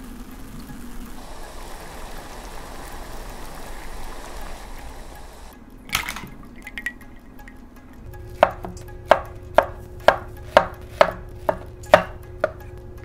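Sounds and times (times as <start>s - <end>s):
knife chopping on wooden board: 8.4s - 12.8s.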